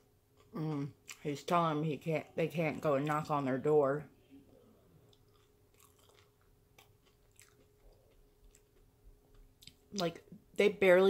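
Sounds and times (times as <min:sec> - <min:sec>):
chewing fried food: 0:04.7 - 0:10.0.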